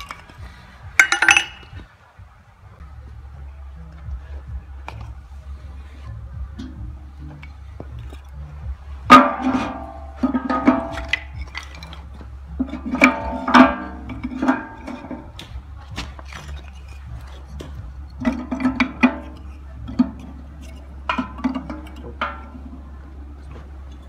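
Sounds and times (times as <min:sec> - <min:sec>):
wooden sticks clacking together: 0:00.0 - 0:01.9, 0:09.1 - 0:24.0.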